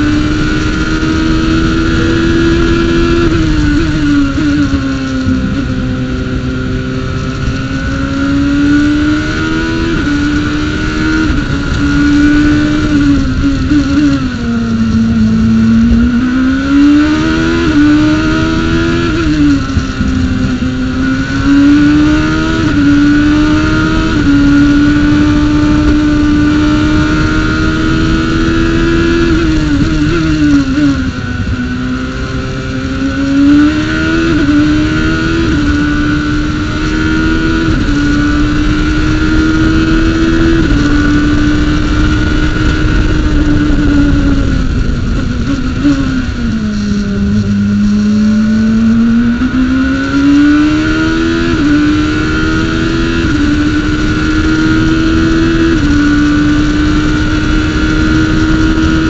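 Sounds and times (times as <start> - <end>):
race car engine accelerating: 0.0 - 59.0.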